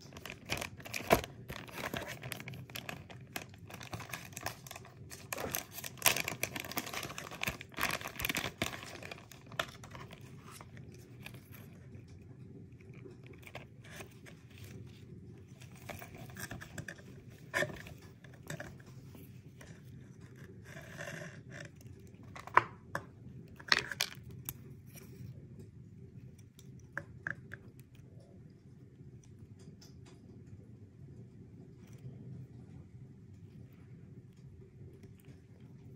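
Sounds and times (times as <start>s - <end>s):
fabric pouch and paper handling: 0.0s - 11.8s
plastic bag crinkling: 0.0s - 11.8s.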